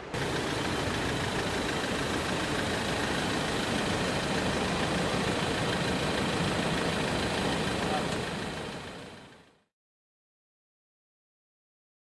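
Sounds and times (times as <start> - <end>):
steady machinery running: 0.0 - 9.6.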